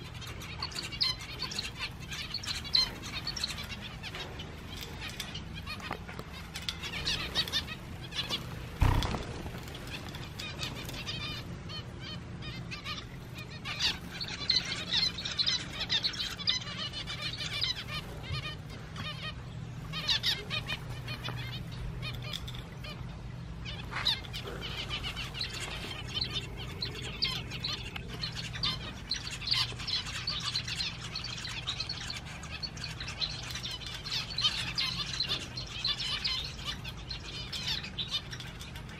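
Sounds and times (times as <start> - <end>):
finches chirping: 0.0 - 38.9
steady low hum: 0.0 - 38.9
loud thump: 8.8 - 9.5.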